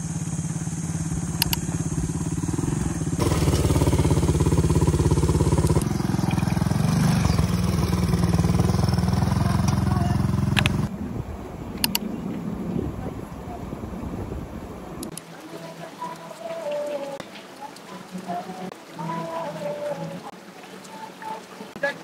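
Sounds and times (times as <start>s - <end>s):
quad bike engine running: 0.0s - 10.9s.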